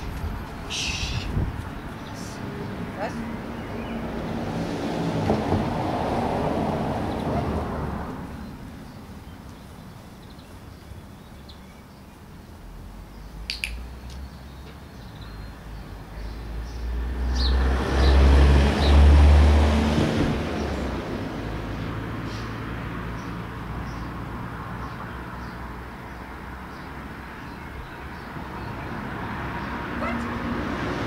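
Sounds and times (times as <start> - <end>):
sharp click: 13.5 - 14.2.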